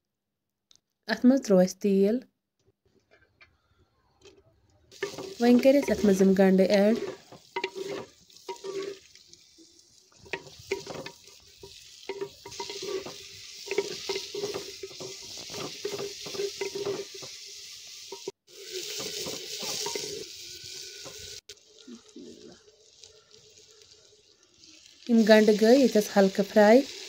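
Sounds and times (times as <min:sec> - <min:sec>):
spoon scraping a clay pot: 0:04.9 - 0:09.1, 0:10.1 - 0:17.3, 0:18.2 - 0:20.2
onions sizzling in hot oil: 0:04.9 - 0:27.0.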